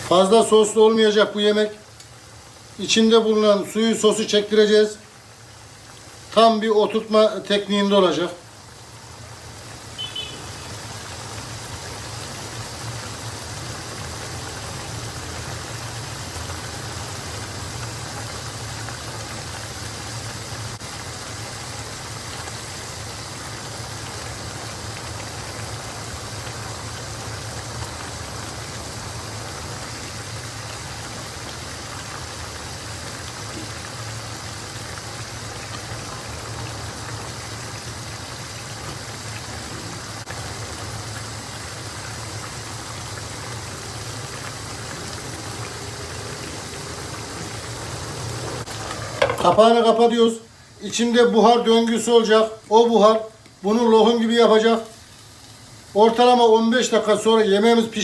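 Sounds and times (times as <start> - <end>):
sauce bubbling in a pan: 0.0 - 58.0.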